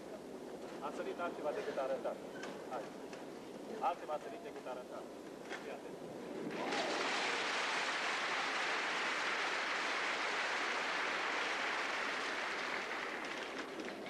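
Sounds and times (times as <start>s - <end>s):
crowd applauding: 6.5s - 14.0s.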